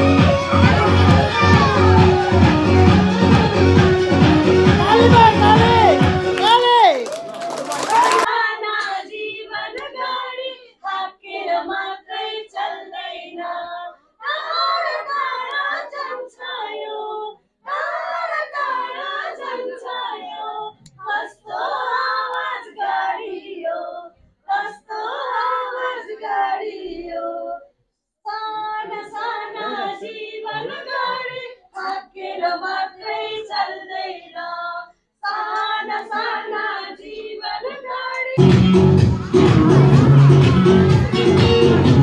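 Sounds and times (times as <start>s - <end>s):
children singing: 0.0s - 6.3s, 17.7s - 23.9s, 28.8s - 34.6s, 35.2s - 42.0s.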